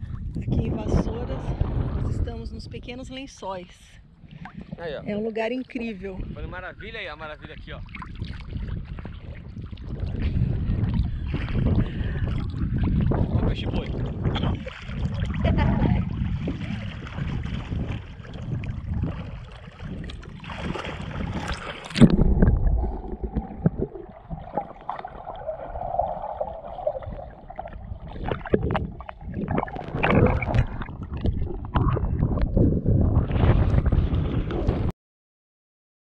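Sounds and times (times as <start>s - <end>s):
water sloshing and lapping: 0.0s - 34.9s
muffled underwater sound: 8.8s - 20.4s, 21.1s - 34.9s
crackling splashes: 10.9s - 32.6s.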